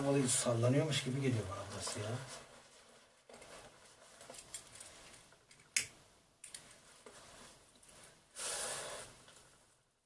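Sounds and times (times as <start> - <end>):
faint clicks and rustles: 1.5 - 8.2.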